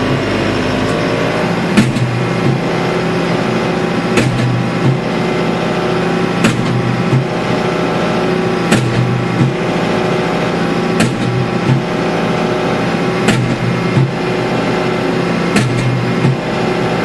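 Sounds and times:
tractor engine running: 0.0 - 17.0
post driver striking post: 1.7 - 2.7, 4.2 - 5.1, 6.4 - 7.4, 8.7 - 9.6, 11.0 - 11.9, 13.2 - 14.2, 15.5 - 16.5.

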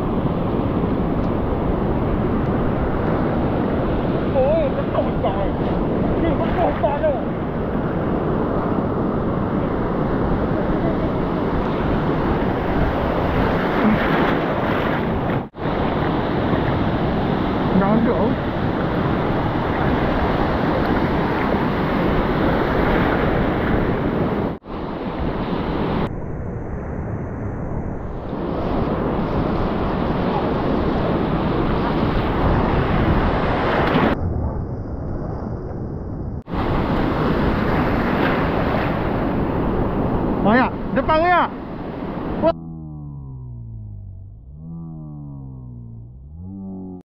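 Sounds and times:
surf breaking on beach: 0.0 - 26.1, 36.5 - 42.5
wind buffeting microphone: 0.0 - 42.6.

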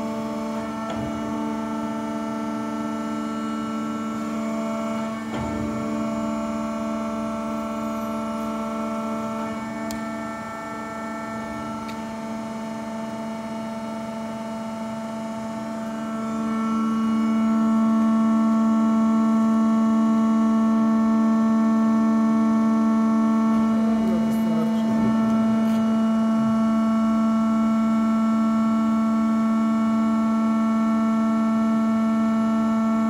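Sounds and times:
plate rolling machine humming: 23.0 - 28.2.

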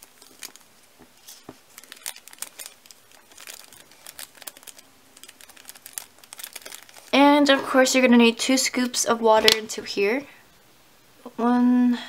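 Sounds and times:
paper packet crinkling: 0.0 - 7.2.

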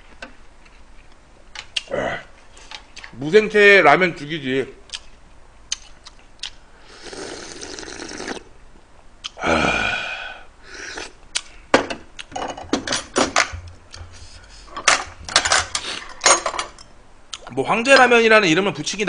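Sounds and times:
person slurping broth: 6.8 - 8.5, 9.3 - 11.2
throaty exhale or burp: 6.9 - 8.5, 9.4 - 11.2.

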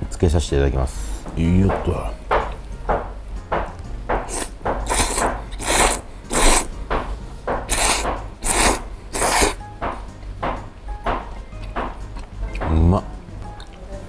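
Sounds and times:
person slurping noodles: 4.2 - 6.7, 7.7 - 9.6.

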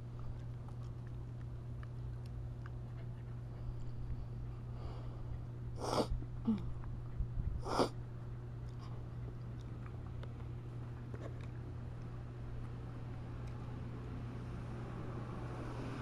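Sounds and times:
steady low hum: 0.0 - 16.0
dog sneezing: 5.8 - 6.1, 7.6 - 7.9.

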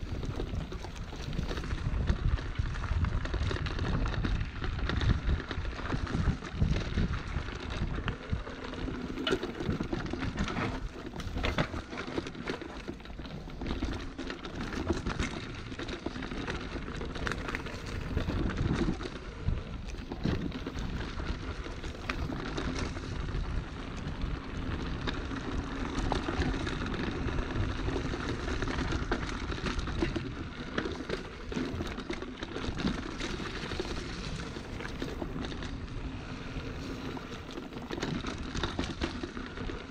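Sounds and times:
wind buffeting microphone: 0.0 - 11.9
continuous rumble: 0.0 - 39.9.

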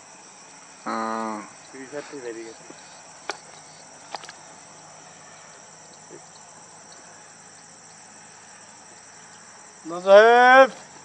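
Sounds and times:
faint hiss: 0.0 - 11.0
insects trilling: 0.0 - 11.0.

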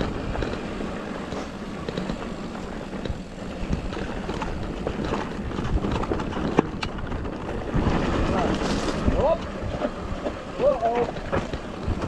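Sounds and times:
bike knocks and rattles: 0.0 - 12.0
bike tyres on dirt trail: 0.0 - 12.0.

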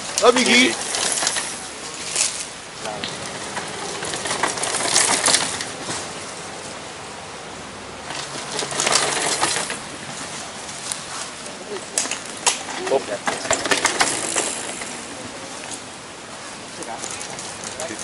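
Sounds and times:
mountain bike rattling: 0.0 - 7.0, 8.0 - 15.9, 16.7 - 18.0
tyres crunching over gravel: 0.2 - 6.7.

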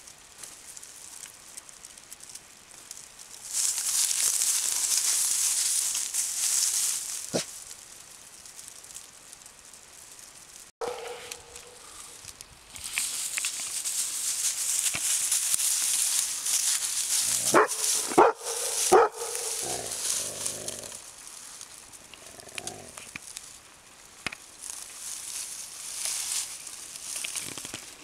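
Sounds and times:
rustle of dry grass and brush: 0.0 - 28.0
dog barking: 10.8 - 11.8, 17.4 - 19.9.

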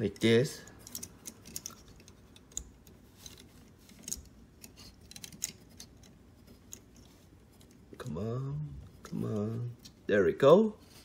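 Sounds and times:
plastic model parts clicking: 0.0 - 6.9.

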